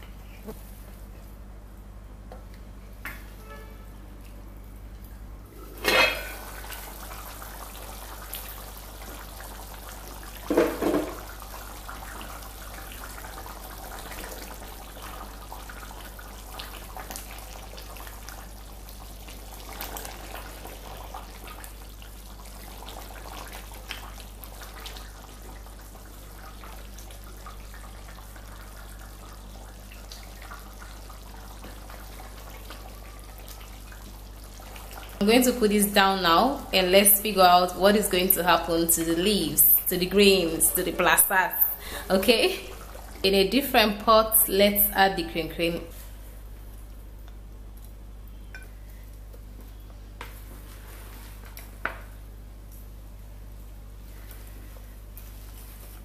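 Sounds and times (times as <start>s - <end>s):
knocks on pot: 10.5s - 11.2s.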